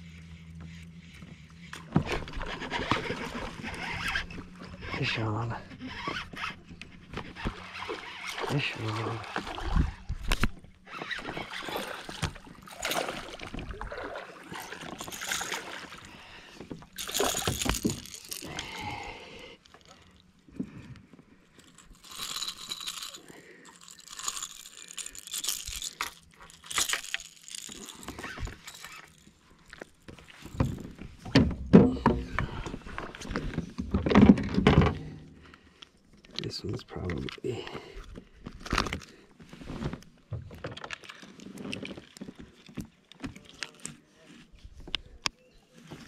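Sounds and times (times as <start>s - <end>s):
fish handling rattling: 9.3s - 20.6s, 21.5s - 35.3s
clicks and knocks in plastic kayak: 30.1s - 35.3s, 38.1s - 44.0s.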